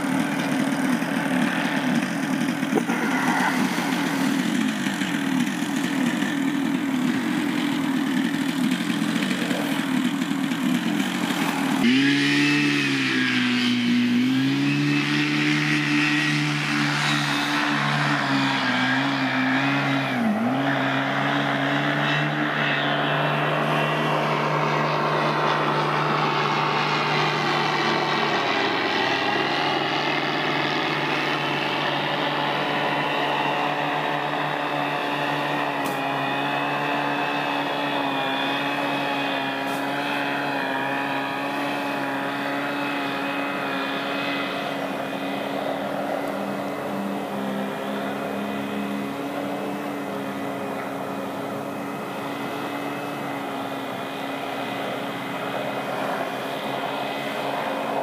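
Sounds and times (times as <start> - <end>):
light aircraft engine droning: 0.0 - 14.2, 15.0 - 58.0.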